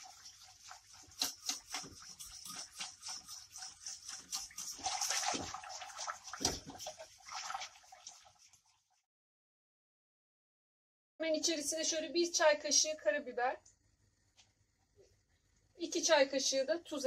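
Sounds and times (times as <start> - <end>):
whisk clicking against pot: 0.0 - 8.2
liquid sloshing: 0.0 - 8.8.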